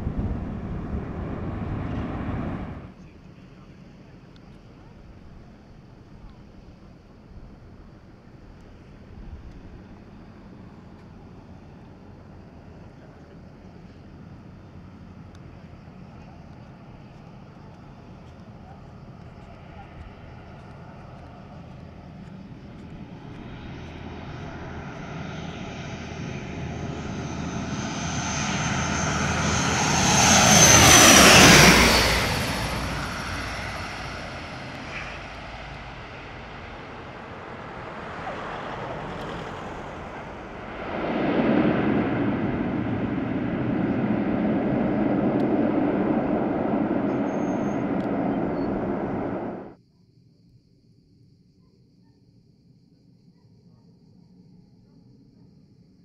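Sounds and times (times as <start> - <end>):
rush of engine noise: 0.0 - 3.0, 22.8 - 49.8
airliner passing overhead: 0.0 - 49.8.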